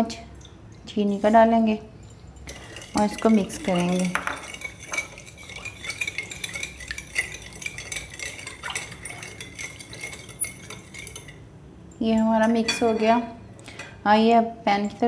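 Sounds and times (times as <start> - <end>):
spoon clinking against glass bowl: 2.0 - 14.0.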